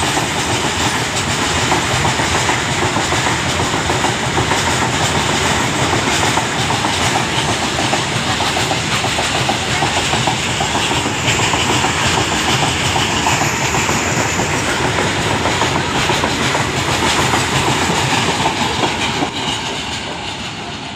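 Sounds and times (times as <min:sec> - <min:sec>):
freight train rumbling: 0:00.0 - 0:20.9
wheels clattering over rail joints: 0:00.0 - 0:20.9.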